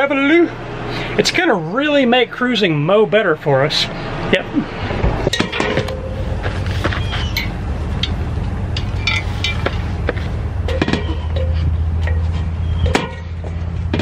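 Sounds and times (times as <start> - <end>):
steady low rumble: 0.0 - 14.0
metal anchor clinking and knocking: 7.3 - 14.0.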